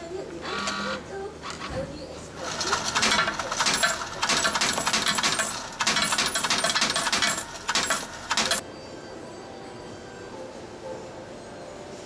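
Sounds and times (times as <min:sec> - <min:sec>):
coins clattering into tray: 0:02.4 - 0:08.6.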